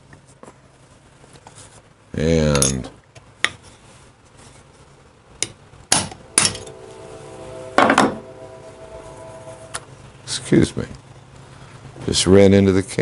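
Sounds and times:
hammer striking metal punch: 5.9 - 6.7.

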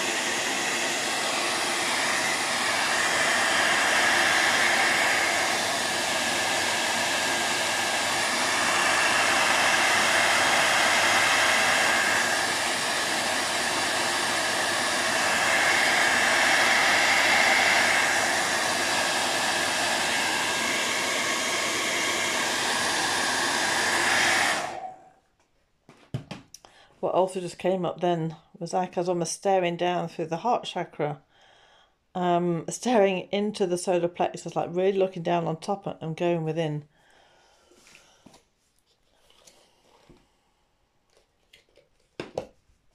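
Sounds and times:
hair dryer running: 0.0 - 25.2.

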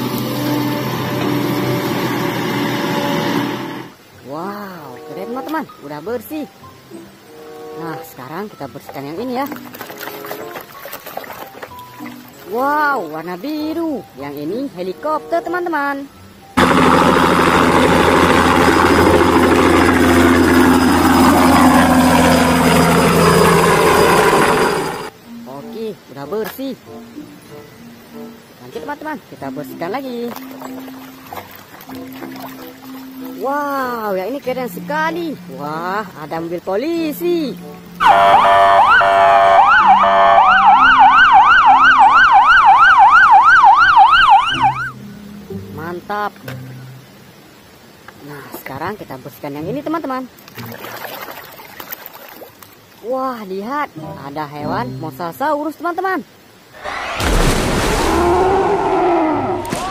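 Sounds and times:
helicopter turbine and rotor: 0.0 - 4.0, 16.6 - 25.1
police car sirens: 38.0 - 45.0.

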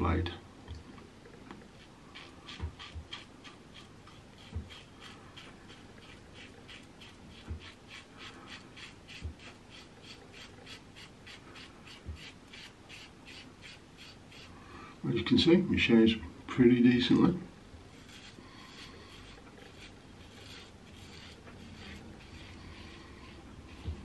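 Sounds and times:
razor scraping stubble: 1.7 - 14.6, 17.9 - 24.0.

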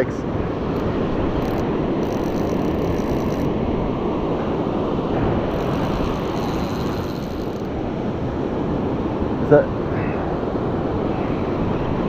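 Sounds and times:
surf rushing on a beach: 0.0 - 12.0
wind on microphone: 0.0 - 12.0.

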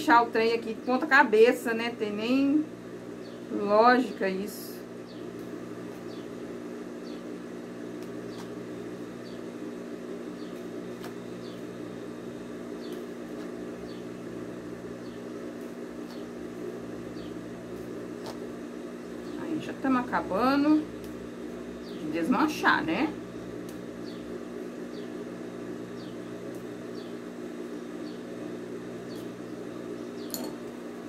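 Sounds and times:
low mechanical hum: 0.0 - 31.0.

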